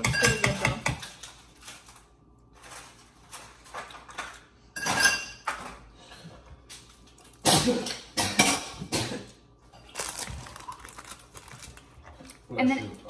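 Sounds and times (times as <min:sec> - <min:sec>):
loud sneeze: 0:07.4 - 0:09.3.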